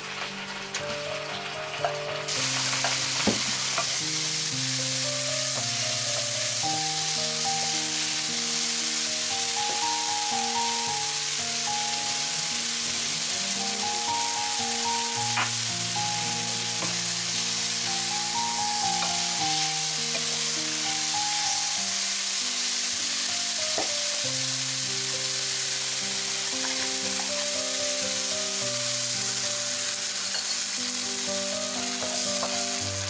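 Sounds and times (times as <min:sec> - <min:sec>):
background piano music: 0:00.0 - 0:33.0
vegetables sizzling in oil: 0:00.0 - 0:33.0.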